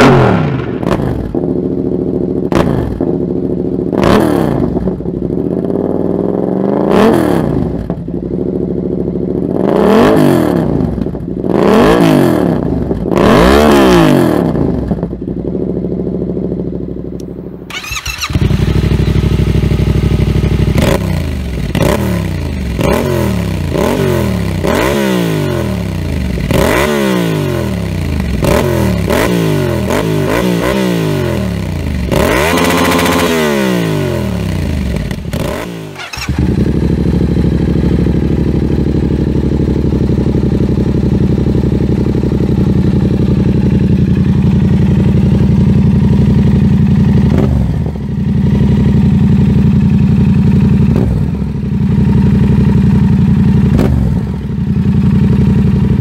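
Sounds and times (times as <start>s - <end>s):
motorcycle engine revving: 0.0s - 56.0s
motorcycle throttle blips: 15.2s - 24.9s, 34.4s - 56.0s.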